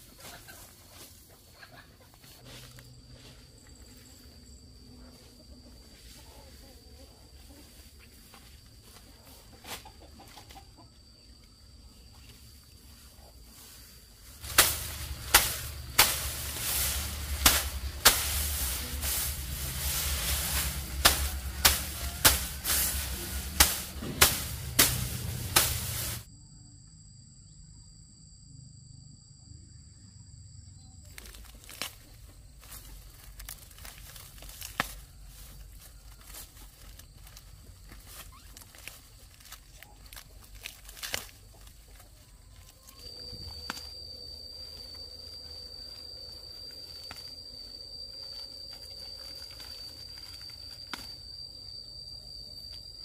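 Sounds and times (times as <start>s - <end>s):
loud rustling: 14.3s - 26.3s
faint scattered ticks: 31.1s - 53.0s.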